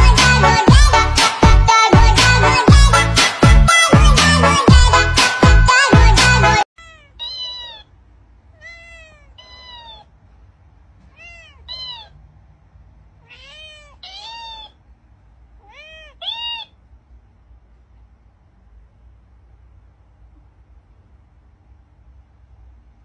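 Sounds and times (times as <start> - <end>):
dance music: 0.0 - 6.6
cat meowing: 6.8 - 7.9, 8.5 - 10.1, 11.0 - 12.2, 13.2 - 14.8, 15.6 - 16.8.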